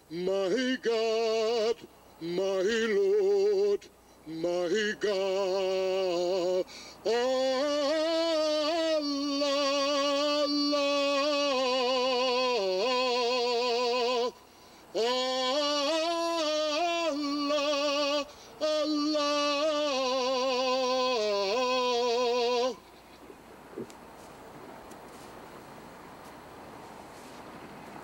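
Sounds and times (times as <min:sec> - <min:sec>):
man singing unaccompanied: 0:00.0 - 0:23.0.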